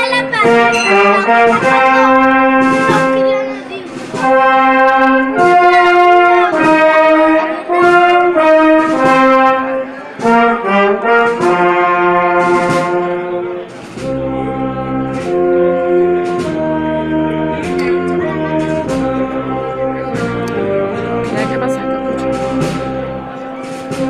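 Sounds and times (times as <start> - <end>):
brass band playing a march: 0.0 - 24.0
sharp percussion strikes: 0.3 - 4.6.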